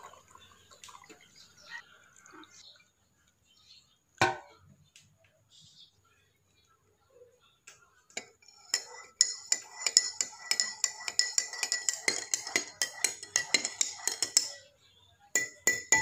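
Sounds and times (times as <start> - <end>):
spoon clinking in ceramic mug: 8.1 - 14.7, 15.4 - 16.0.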